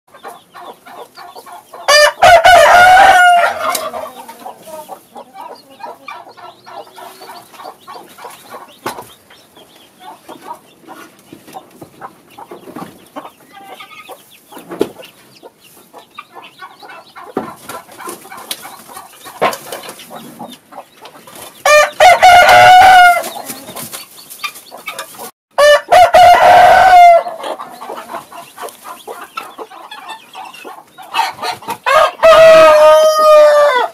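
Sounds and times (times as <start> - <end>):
chickens clucking: 0.1 - 33.9
roosters crowing: 1.6 - 8.0, 21.6 - 23.9, 25.6 - 33.9.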